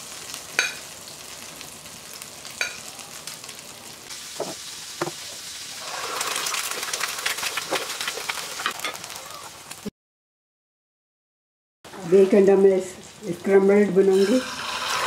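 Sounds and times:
bacon sizzling in a frying pan: 0:00.0 - 0:09.9, 0:11.9 - 0:15.0
egg frying in hot oil: 0:00.0 - 0:09.9, 0:13.4 - 0:15.0.

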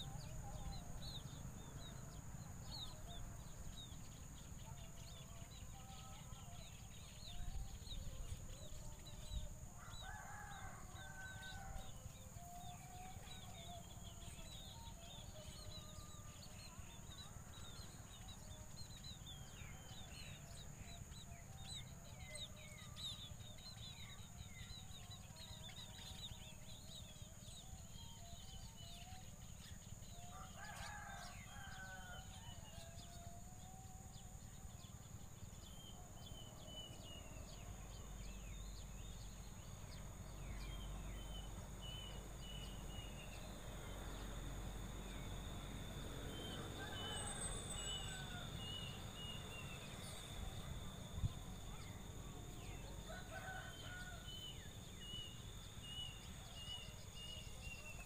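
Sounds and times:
rooster crowing: 0:09.8 - 0:12.2, 0:30.1 - 0:34.6, 0:45.2 - 0:50.6, 0:51.8 - 0:58.0.

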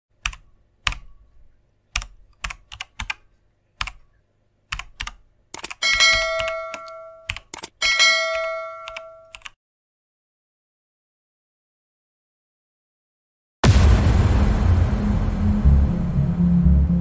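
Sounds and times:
keyboard typing: 0:00.2 - 0:01.2, 0:01.9 - 0:09.6.

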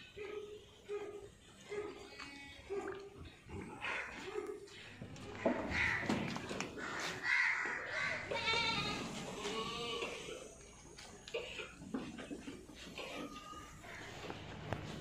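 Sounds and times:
goat bleating: 0:06.9 - 0:10.5.

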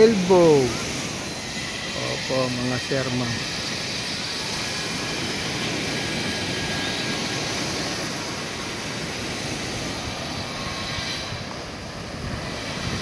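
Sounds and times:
sea waves breaking on shore: 0:00.0 - 0:13.0.

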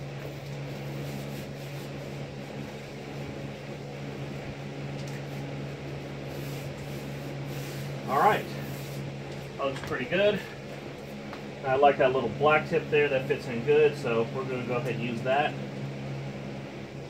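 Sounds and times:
hands rubbing foam mat: 0:00.0 - 0:09.5
low machine hum: 0:00.0 - 0:17.0.

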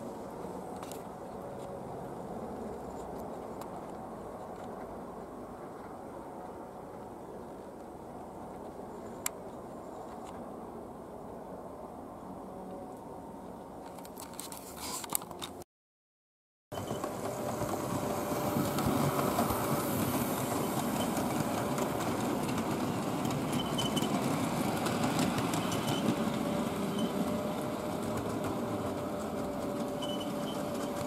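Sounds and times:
model train wheels rumbling on rails: 0:16.8 - 0:31.0
rail clicks: 0:16.8 - 0:31.0.

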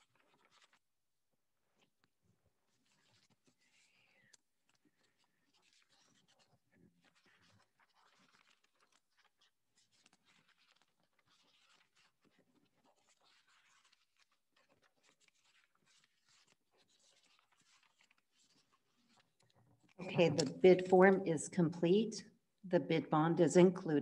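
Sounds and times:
paper sheets rustling: 0:00.1 - 0:00.8, 0:07.1 - 0:19.3.

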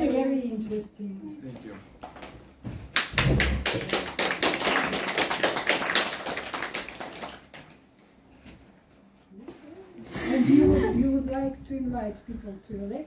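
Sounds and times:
audience applause: 0:03.0 - 0:07.7.

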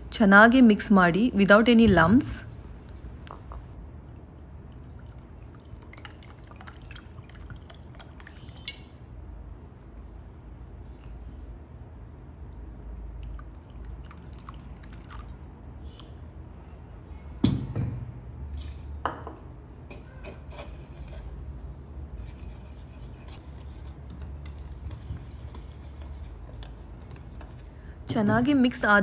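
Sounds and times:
whisk scraping in bowl: 0:22.2 - 0:27.6.

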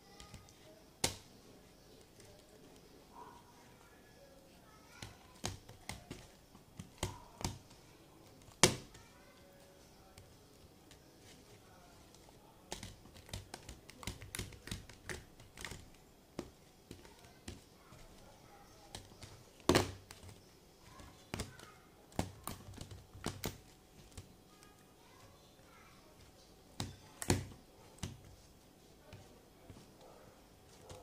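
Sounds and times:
soft clicks and taps: 0:10.0 - 0:31.0
fingers pressing slime: 0:12.7 - 0:18.2, 0:26.7 - 0:28.4.

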